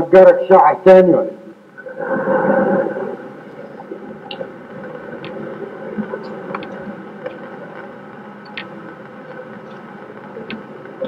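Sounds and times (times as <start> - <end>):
room noise hiss: 0.0 - 11.0
faint clicks and knocks: 3.5 - 11.0.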